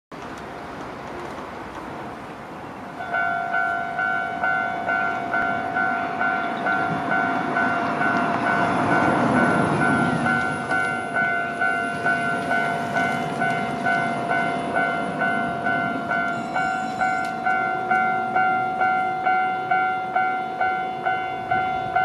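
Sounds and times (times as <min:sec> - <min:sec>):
level-crossing warning bell: 0:02.9 - 0:22.0.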